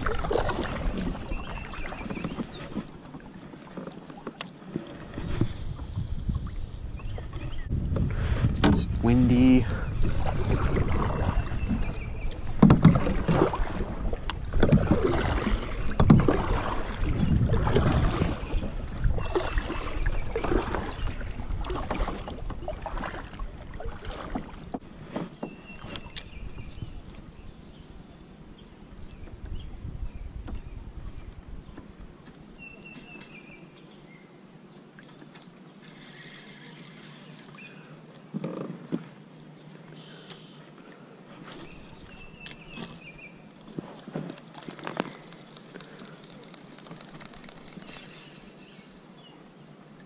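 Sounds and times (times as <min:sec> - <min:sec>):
wind rumbling on microphone: 0:00.0 - 0:02.9, 0:05.0 - 0:24.8, 0:25.7 - 0:32.2
kayak paddle splashing in water: 0:00.0 - 0:08.9, 0:09.8 - 0:26.4.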